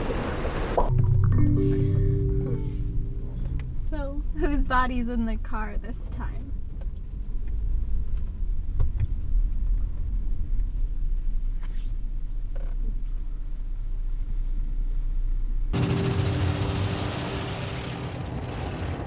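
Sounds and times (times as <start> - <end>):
car engine rumble: 0.0 - 19.0
road noise: 0.0 - 19.0
soft rustle: 11.4 - 13.4.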